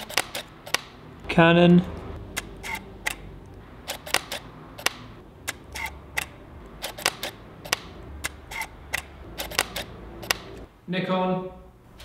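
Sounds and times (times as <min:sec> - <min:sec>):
camera shutter clicks: 0:00.0 - 0:00.9, 0:03.9 - 0:10.5.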